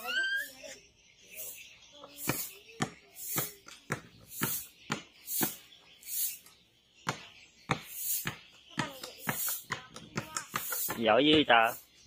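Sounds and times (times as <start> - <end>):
ball slapping on concrete: 2.0 - 11.6.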